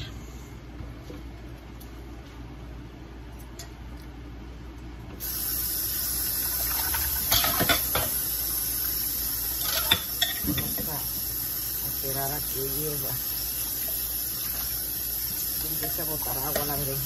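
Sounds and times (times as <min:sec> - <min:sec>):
steady hiss: 0:05.2 - 0:17.0.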